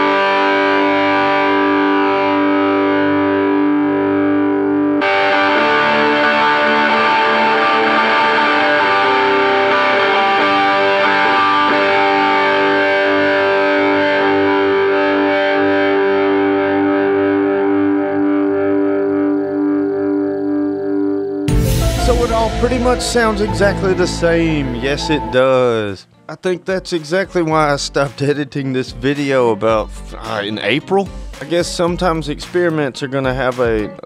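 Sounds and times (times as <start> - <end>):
distorted electric guitar: 0.0 - 26.3.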